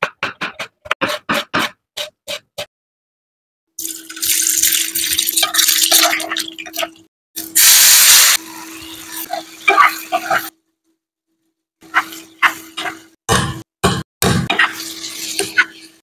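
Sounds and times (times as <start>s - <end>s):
ladle stirring and knocking in pan: 0.0s - 2.7s, 11.8s - 16.0s
oil sizzling in frying pan: 7.4s - 10.5s.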